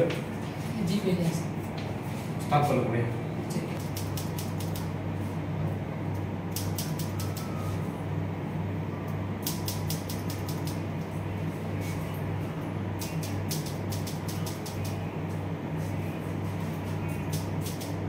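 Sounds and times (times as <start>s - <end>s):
steady low hum: 0.0s - 18.0s
scissors snipping hair: 3.6s - 5.0s, 6.1s - 7.6s, 9.4s - 10.8s, 13.0s - 15.4s, 16.8s - 18.0s.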